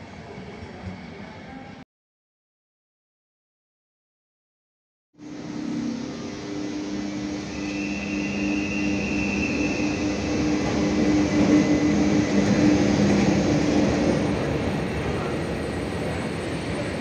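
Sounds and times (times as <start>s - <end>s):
thin high whine: 5.2s - 13.6s
electric locomotive hum: 5.2s - 17.0s.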